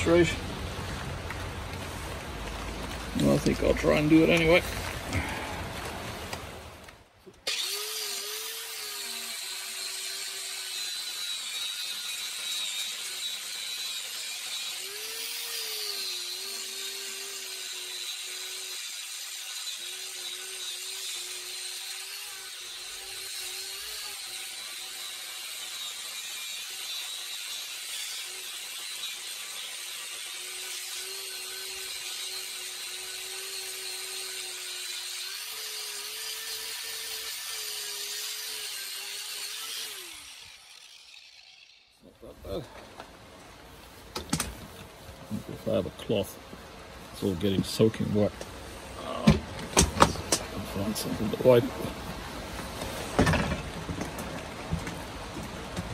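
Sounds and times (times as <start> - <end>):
angle grinder sanding metal: 7.5 - 42.6, 50.2 - 52.1.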